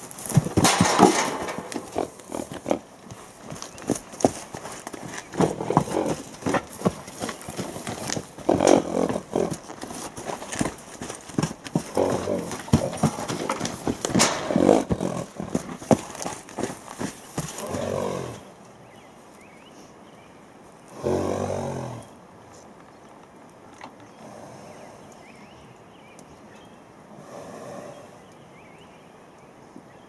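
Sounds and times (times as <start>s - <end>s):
hooves on muddy ground: 0.0s - 20.0s.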